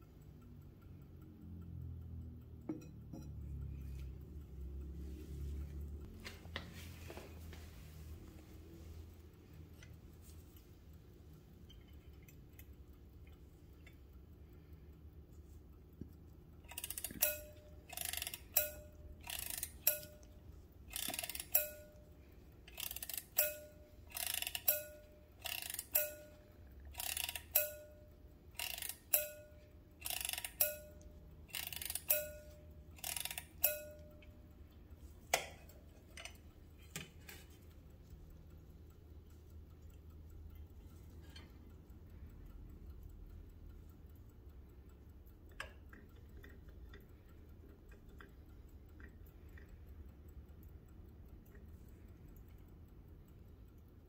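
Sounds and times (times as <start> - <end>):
clock striking: 16.5 - 37.5.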